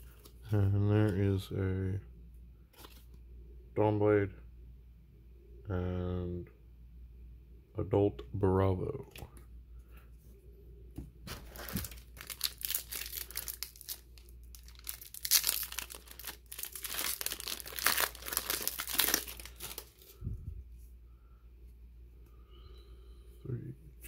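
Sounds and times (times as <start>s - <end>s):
foil wrapper crinkling and tearing: 11.3s - 20.2s.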